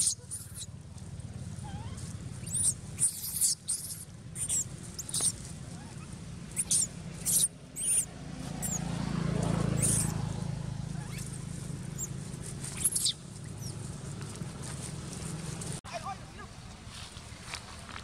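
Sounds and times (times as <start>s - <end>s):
baby monkey squealing: 0.0s - 0.8s, 1.6s - 8.9s, 9.7s - 10.3s, 10.9s - 13.8s.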